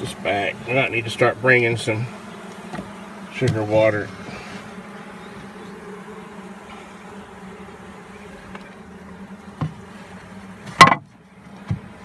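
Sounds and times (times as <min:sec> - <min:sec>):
honeybees humming: 0:00.0 - 0:12.0
wooden knocks on hive: 0:02.5 - 0:04.3, 0:09.5 - 0:09.9, 0:10.6 - 0:12.0.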